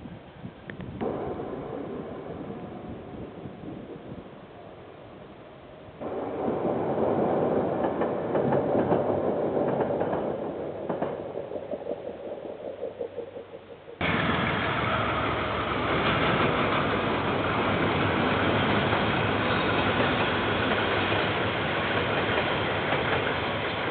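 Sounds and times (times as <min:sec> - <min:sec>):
diesel locomotive running: 0:14.0 - 0:23.9.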